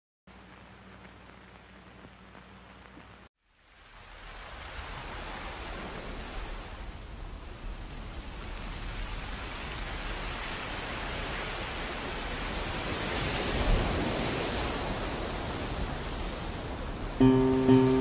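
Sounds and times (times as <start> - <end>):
rushing surf-like noise: 8.0 - 18.0.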